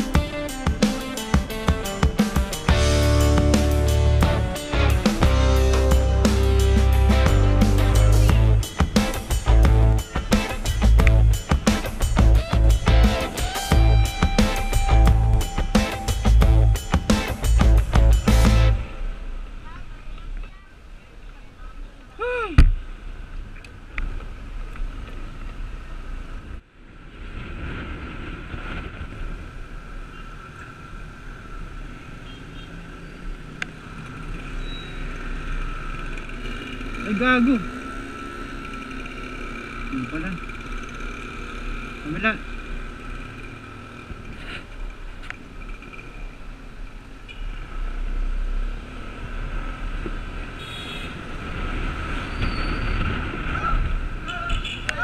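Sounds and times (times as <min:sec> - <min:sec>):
wind noise on microphone: 0:26.4 - 0:30.0.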